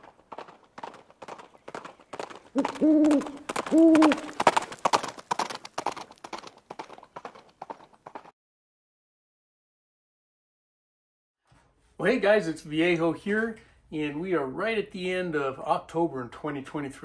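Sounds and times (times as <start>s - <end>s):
loud hooting calls: 2.5s - 4.4s.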